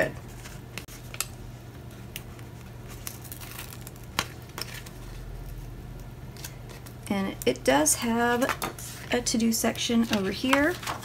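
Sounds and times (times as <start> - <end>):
steady low hum: 0.0 - 11.0
hands handling paper sheets: 10.0 - 11.0.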